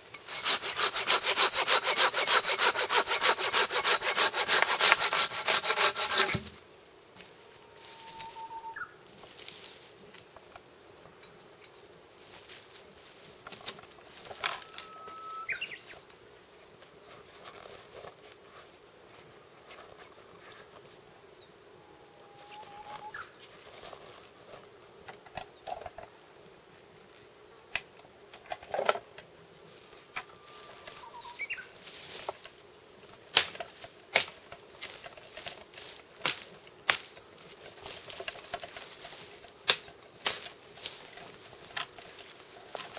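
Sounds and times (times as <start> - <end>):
footsteps through dry twigs: 7.2 - 10.3, 12.1 - 16.1, 29.7 - 42.9
bird whistling: 8.1 - 9.0, 14.8 - 15.9, 31.0 - 31.6.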